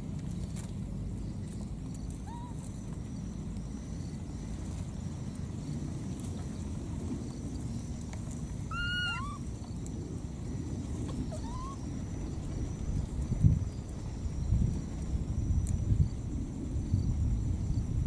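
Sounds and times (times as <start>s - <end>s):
low outdoor rumble: 0.0s - 18.0s
pitched animal calls: 2.2s - 2.7s, 8.7s - 9.5s, 11.0s - 11.9s.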